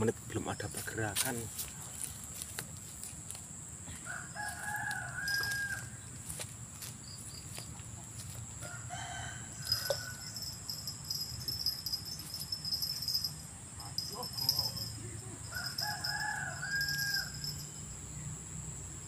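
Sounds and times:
rooster crowing: 4.0s - 6.1s, 8.6s - 11.8s, 14.0s - 17.8s.

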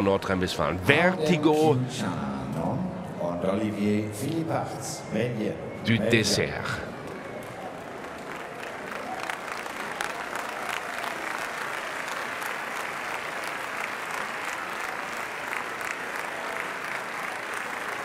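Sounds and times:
crowd applauding: 6.6s - 18.0s.

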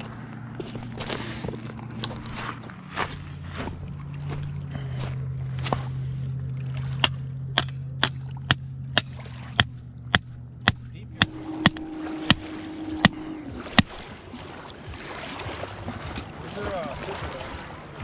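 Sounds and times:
steady low hum: 0.0s - 18.0s
rock striking metal pipe: 7.0s - 14.0s.

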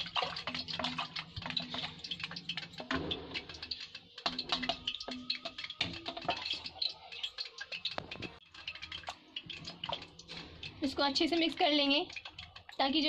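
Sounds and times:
batter sloshing: 0.0s - 13.0s
wooden spoon tapping steel pot: 0.0s - 13.0s.

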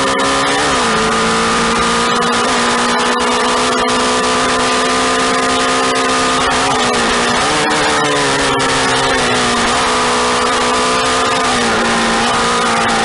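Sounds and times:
motorcycle engine running hard: 0.0s - 13.0s.

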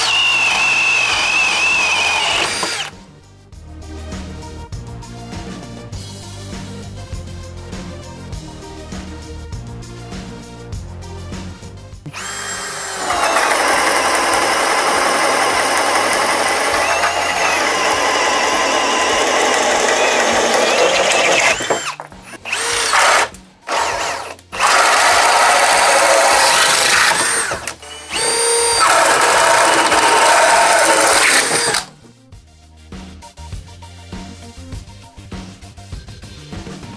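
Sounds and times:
cordless drill boring through wood: 0.0s - 2.9s, 12.1s - 31.9s.

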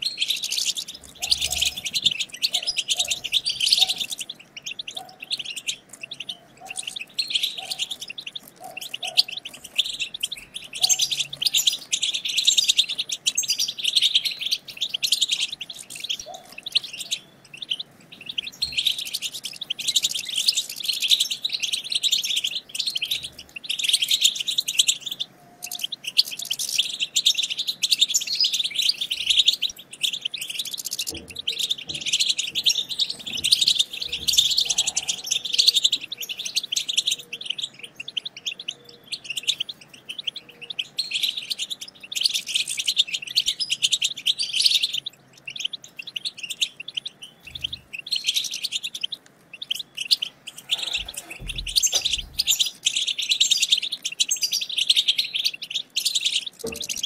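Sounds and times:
goldfinches twittering: 28.1s - 57.0s.

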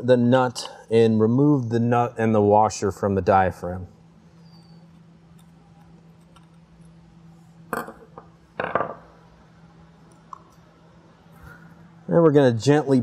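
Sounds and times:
tool set down on wooden bench: 7.8s - 9.1s.

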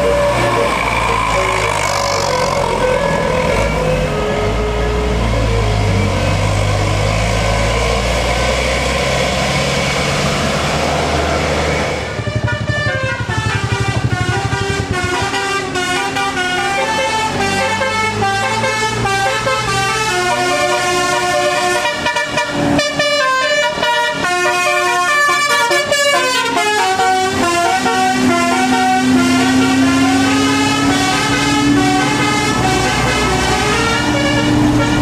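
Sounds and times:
bus engine: 0.0s - 35.0s
musical air horn playing a tune: 12.0s - 35.0s.

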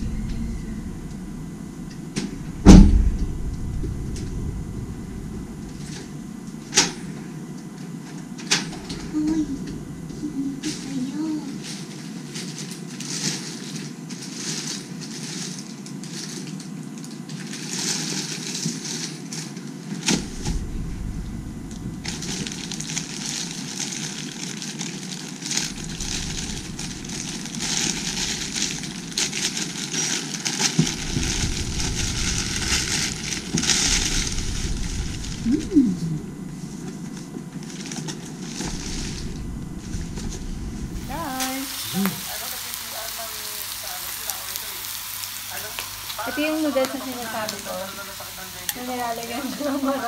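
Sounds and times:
plastic mailer bag crinkling: 10.8s - 21.1s, 22.0s - 48.4s.

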